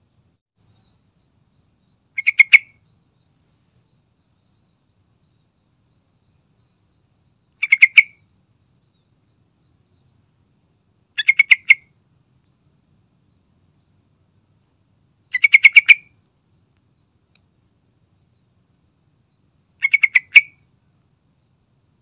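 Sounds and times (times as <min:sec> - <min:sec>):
bird calling: 0:02.1 - 0:05.5, 0:06.4 - 0:08.3, 0:11.2 - 0:12.0, 0:15.3 - 0:16.2, 0:19.4 - 0:20.7.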